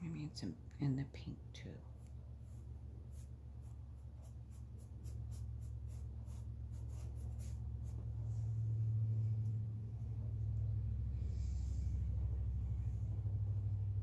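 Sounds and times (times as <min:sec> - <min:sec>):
low hum: 0:00.0 - 0:14.0
paintbrush stroking canvas: 0:01.9 - 0:08.8.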